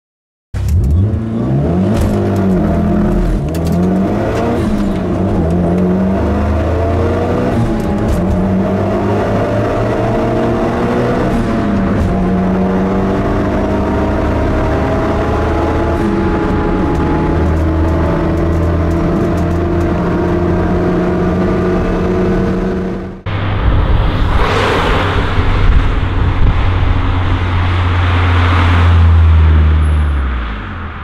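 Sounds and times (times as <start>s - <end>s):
car engine accelerating: 0.6s - 31.0s.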